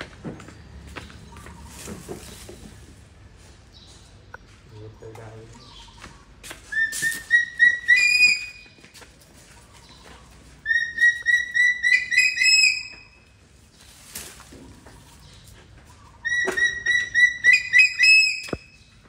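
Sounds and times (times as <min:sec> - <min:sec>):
baby monkey chirping squeaks: 0:06.7 - 0:08.7, 0:10.6 - 0:13.2, 0:16.2 - 0:18.8.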